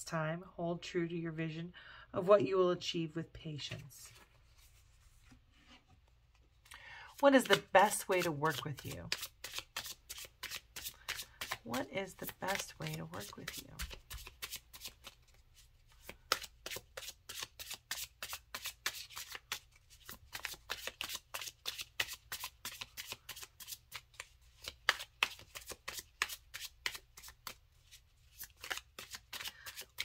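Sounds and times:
cards being shuffled: 6.2 - 30.0.

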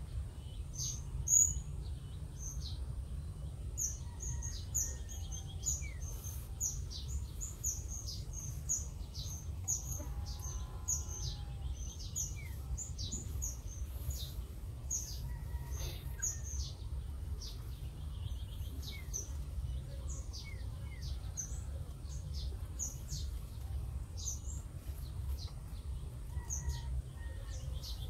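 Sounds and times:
low steady rumble: 0.0 - 28.0.

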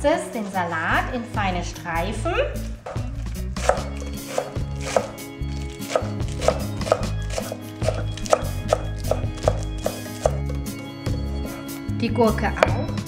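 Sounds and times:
knife chopping lettuce on board: 2.9 - 10.4.

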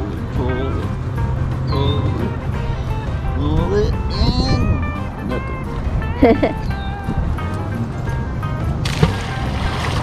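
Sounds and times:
magnet splashing into water: 8.8 - 10.0.

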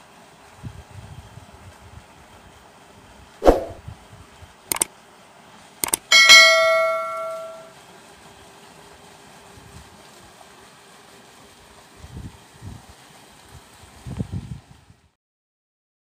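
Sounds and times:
short swoosh: 3.4 - 3.8
mouse clicks: 5.8 - 6.0
notification bell chime: 6.1 - 7.7.

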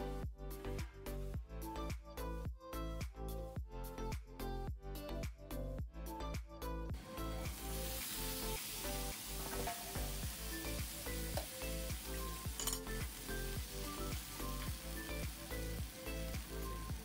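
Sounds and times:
background music with steady beat: 0.0 - 17.0
green beans sizzling in pan: 7.0 - 17.0.

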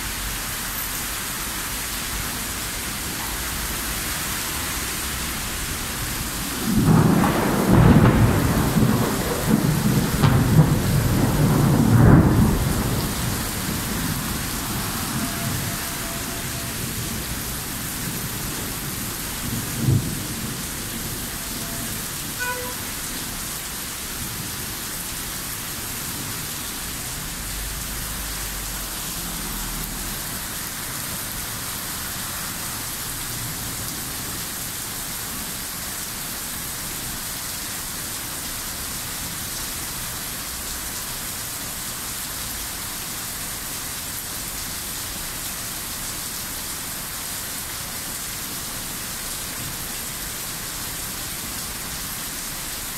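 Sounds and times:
heavy rain on street: 0.0 - 52.9
thunder rumbling: 6.4 - 22.2.

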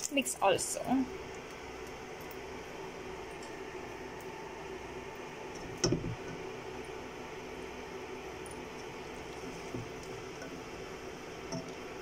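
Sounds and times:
steady low hum: 0.0 - 12.0
wooden spoon stirring thick food: 8.8 - 12.0.

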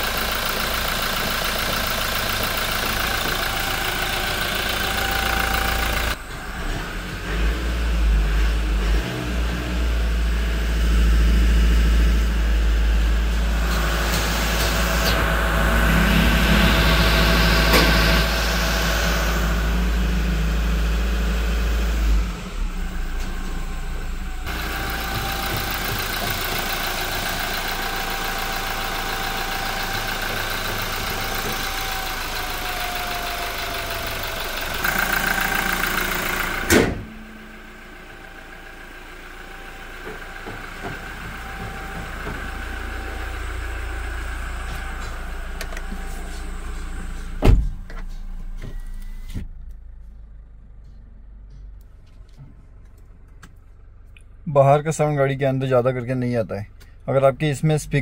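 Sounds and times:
diesel engine idling: 0.0 - 58.0
car bonnet slamming shut: 36.7 - 37.2, 47.4 - 47.9.

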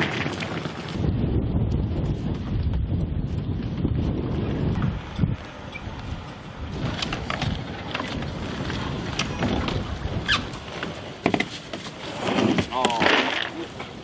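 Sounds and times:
outdoor background noise: 0.0 - 14.0
knocks and scuffs on boat: 6.0 - 13.0.

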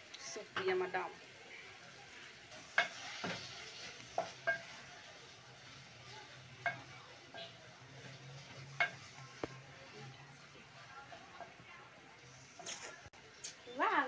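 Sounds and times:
wooden spoon stirring stew: 2.1 - 11.6.

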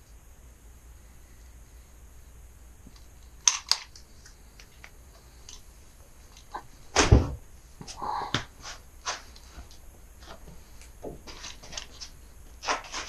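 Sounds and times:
heavy thump: 7.0 - 7.4
scraping rustle: 7.9 - 13.0.

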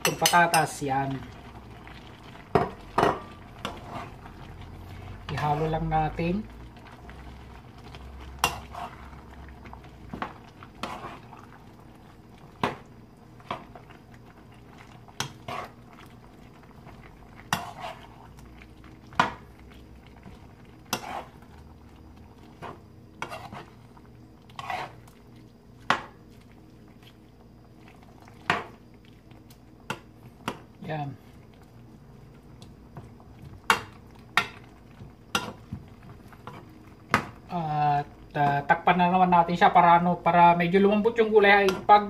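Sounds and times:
utensil scraping frying pan: 2.5 - 4.2, 8.3 - 9.1, 10.7 - 11.4, 15.2 - 15.8, 17.4 - 18.3, 20.8 - 21.5, 22.6 - 23.8, 24.5 - 25.1.

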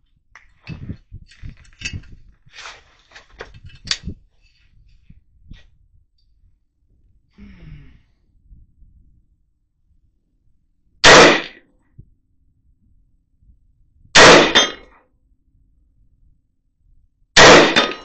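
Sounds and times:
rifle handling clicks and knocks: 0.4 - 2.4, 3.0 - 4.6.

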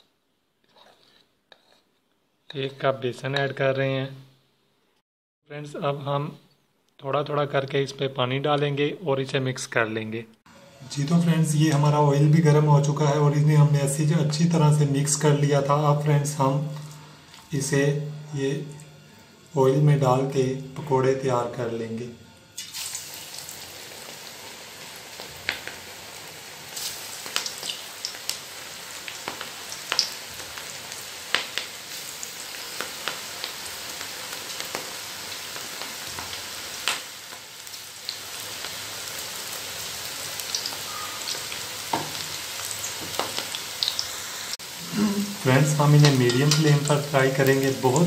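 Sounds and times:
fritters sizzling in hot oil: 22.5 - 48.0.

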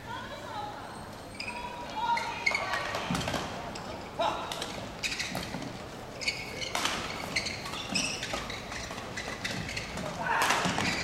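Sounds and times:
shoes squeaking on court: 4.7 - 11.0.

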